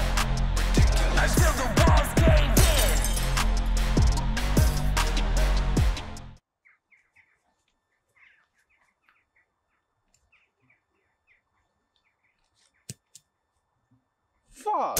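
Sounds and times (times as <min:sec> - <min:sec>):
small birds chirping: 0:06.4 - 0:14.6.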